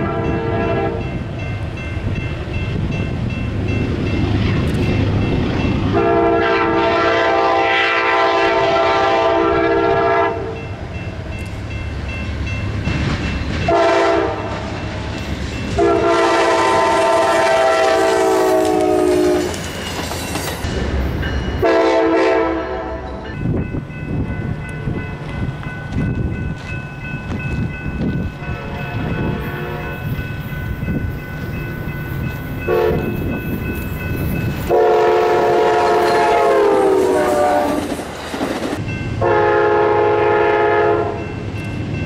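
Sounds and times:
locomotive air horn blasts: 0.0 - 1.1, 5.9 - 10.6, 13.7 - 14.6, 15.8 - 19.6, 21.6 - 23.2, 28.4 - 30.0, 32.7 - 33.2, 34.7 - 37.8, 39.2 - 41.2
train wheels clattering on rails: 11.4 - 21.8, 23.1 - 39.2.

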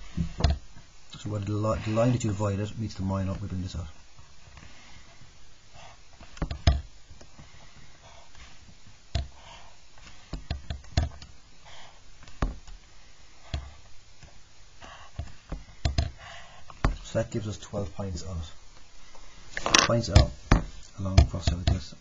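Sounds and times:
sharp taps and knocks: 0.1 - 0.8, 6.2 - 9.4, 10.0 - 11.4, 12.2 - 12.8, 15.1 - 17.1, 19.6 - 21.9.

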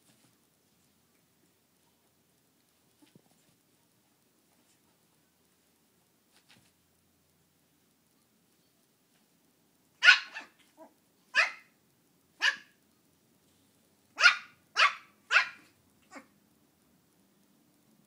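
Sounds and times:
puppy barking: 10.0 - 11.7, 12.4 - 12.8, 14.2 - 16.3.

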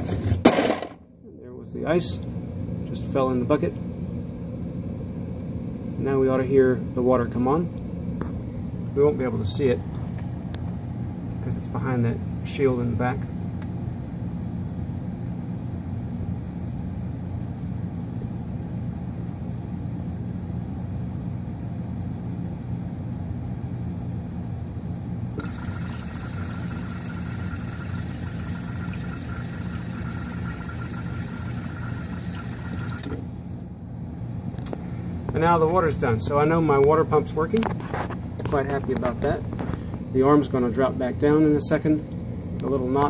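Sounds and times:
steady low hum: 0.0 - 43.0
water hissing into ice maker: 25.4 - 33.2.

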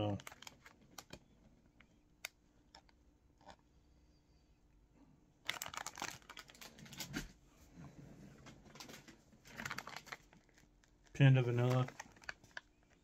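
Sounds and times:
plastic packaging crinkling: 0.0 - 1.2, 5.4 - 7.3, 8.7 - 13.0.

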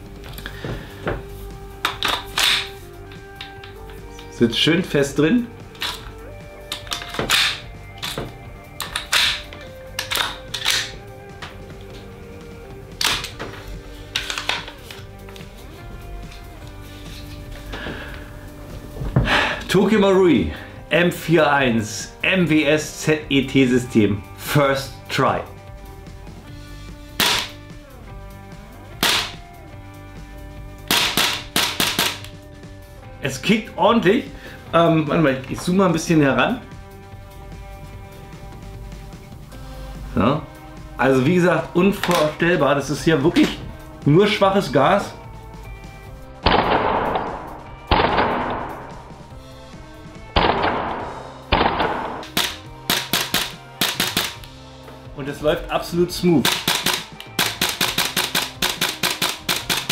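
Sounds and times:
airsoft rifle shots: 27.2 - 27.6, 29.0 - 29.4, 30.9 - 32.3, 46.4 - 49.0, 50.4 - 54.5, 56.4 - 59.9.

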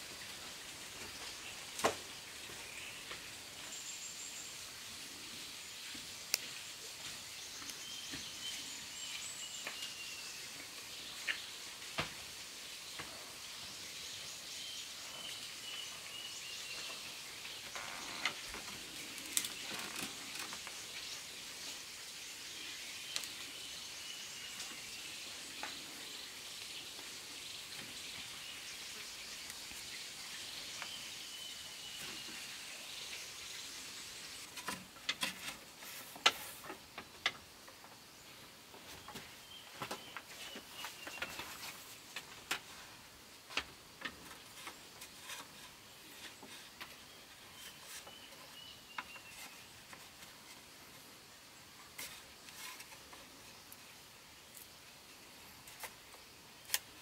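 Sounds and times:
steady high hiss: 0.0 - 57.0
bamboo and cord clicks: 17.8 - 20.8, 56.6 - 57.0.

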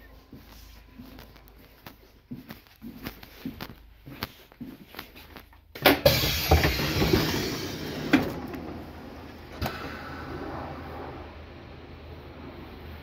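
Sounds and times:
footsteps in train carriage: 0.0 - 10.0
sliding train doors opening: 5.8 - 13.0
rush of noise: 6.4 - 13.0.

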